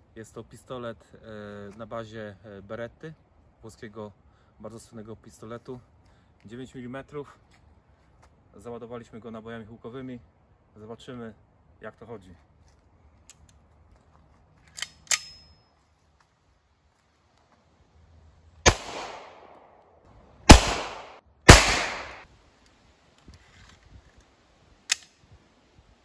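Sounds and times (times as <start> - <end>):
metallic handling clicks: 14.6 - 15.6, 24.9 - 25.2
blank pistol shots: 18.6 - 19.8, 20.4 - 22.2.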